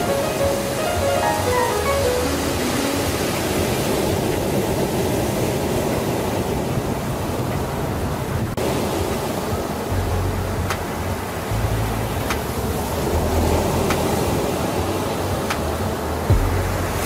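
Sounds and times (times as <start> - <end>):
background music: 0.0 - 5.0, 8.8 - 17.0
waves breaking on beach: 0.0 - 17.0.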